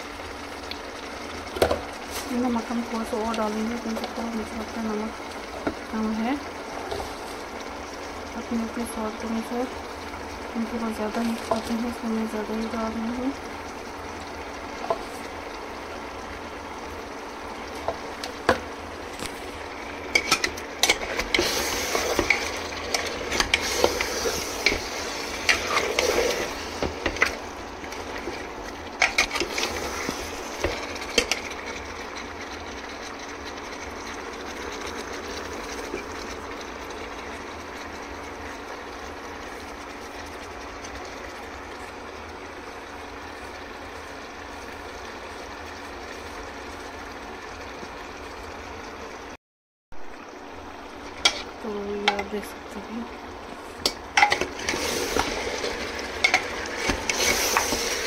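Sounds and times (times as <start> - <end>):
meat sizzling in oil: 0.0 - 49.0, 50.0 - 58.0.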